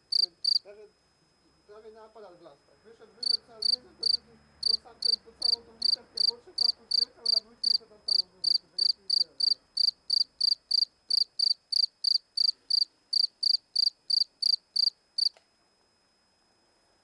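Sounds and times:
cricket chirping: 0:00.0 - 0:00.6, 0:03.2 - 0:15.4.

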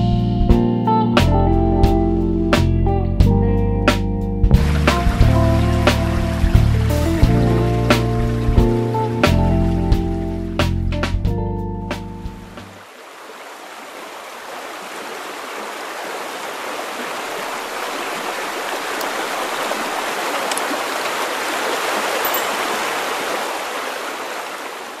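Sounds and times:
music: 0:00.0 - 0:12.8
river water rushing over rapids: 0:04.6 - 0:08.9, 0:12.8 - 0:25.0.

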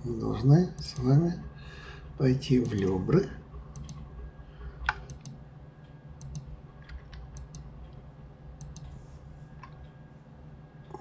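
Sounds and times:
low steady hum: 0:00.0 - 0:11.0
keyboard and mouse clicks: 0:02.6 - 0:03.0, 0:03.7 - 0:04.0, 0:04.8 - 0:05.4, 0:06.2 - 0:08.0, 0:08.6 - 0:09.0.

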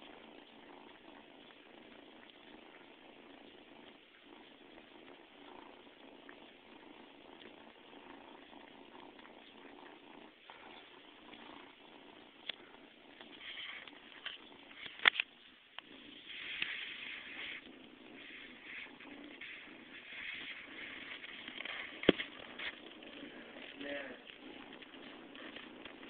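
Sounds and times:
cat chewing on carpet: 0:00.0 - 0:26.0
cat purring: 0:00.0 - 0:26.0
clicks from carpet fibres: 0:12.4 - 0:26.0.

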